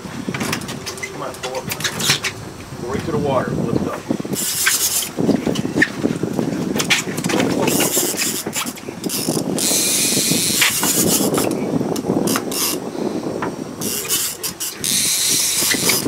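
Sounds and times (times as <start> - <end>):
fishing reel ratchet clicking: 4.4 - 5.1, 7.7 - 11.6, 12.2 - 12.8, 13.8 - 16.0.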